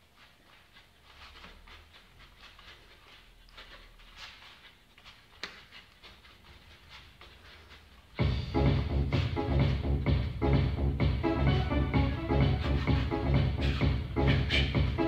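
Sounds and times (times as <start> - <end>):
gloves scuffing and swishing: 0.0 - 8.2.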